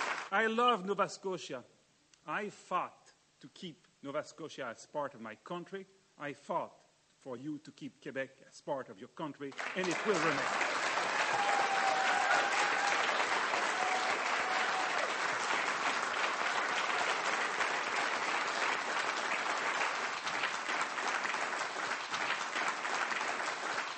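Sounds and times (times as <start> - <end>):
audience applauding: 0.0 - 0.3, 9.5 - 23.9.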